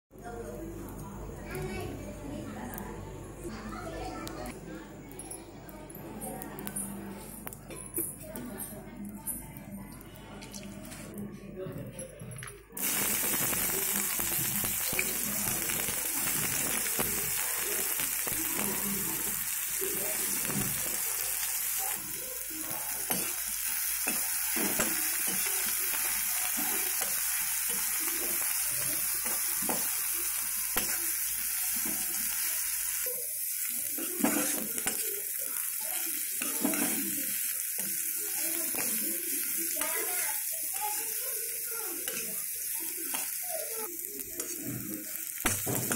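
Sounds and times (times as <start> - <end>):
onions sizzling in hot oil: 12.8 - 45.9.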